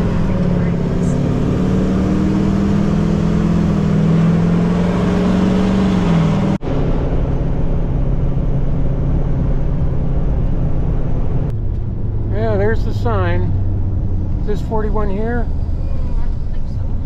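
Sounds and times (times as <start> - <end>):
road noise: 0.0 - 17.0
truck engine hum: 0.0 - 17.0.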